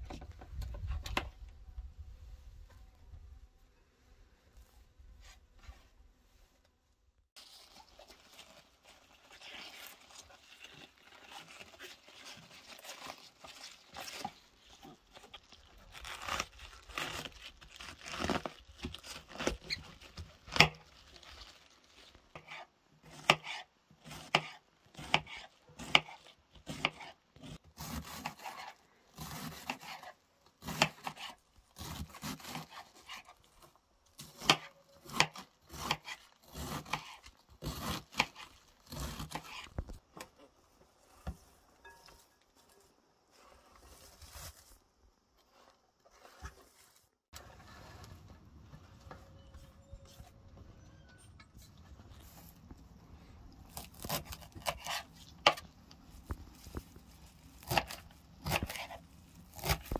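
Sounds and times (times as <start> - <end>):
knife cutting cabbage on board: 22.4 - 39.9, 53.7 - 59.9.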